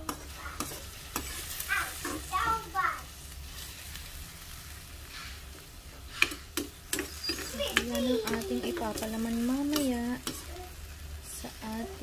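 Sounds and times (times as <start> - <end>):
food sizzling in a pan: 0.0 - 12.0
metal spoon knocking on pan: 6.2 - 10.5.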